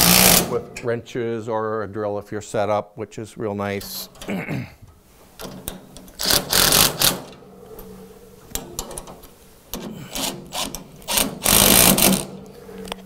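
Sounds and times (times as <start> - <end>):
cordless drill bursts: 0.0 - 0.5, 10.1 - 12.3.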